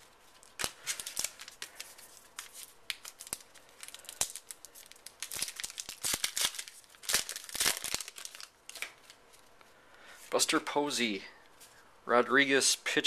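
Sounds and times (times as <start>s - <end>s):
cards shuffling: 0.2s - 9.4s
plastic wrapper crinkling and tearing: 0.2s - 9.5s.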